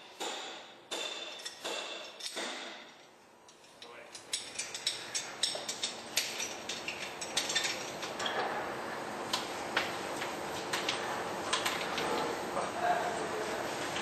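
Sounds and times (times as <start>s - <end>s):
metal tool clicking on wheel nuts: 3.5s - 8.1s.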